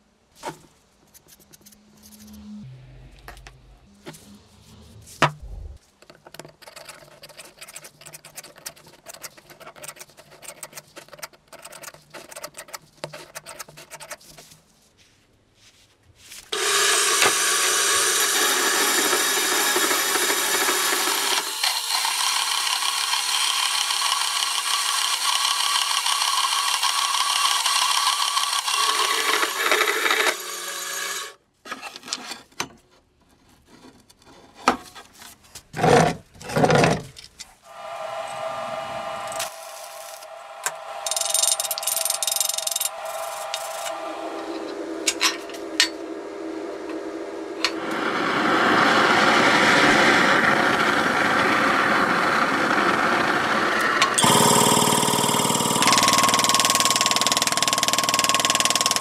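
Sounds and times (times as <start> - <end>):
loud steady machine noise: 16.6 - 31.3, 37.7 - 59.0
tool scraping: 27.6 - 46.0.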